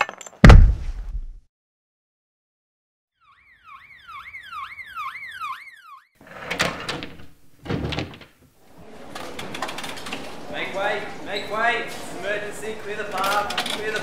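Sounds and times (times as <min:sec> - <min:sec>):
ambulance siren wailing: 0:03.2 - 0:06.2.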